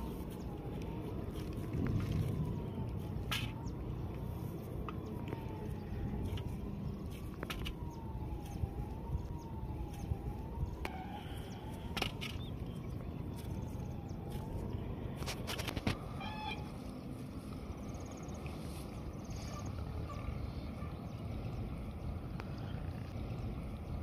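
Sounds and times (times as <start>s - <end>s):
low rumble: 0.0s - 15.2s
faint siren wailing: 0.0s - 24.0s.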